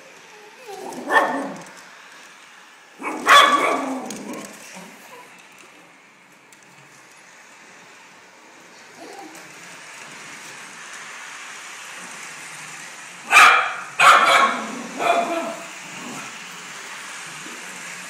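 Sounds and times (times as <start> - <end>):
dog barking: 1.0 - 1.6, 3.0 - 4.0, 13.3 - 15.6.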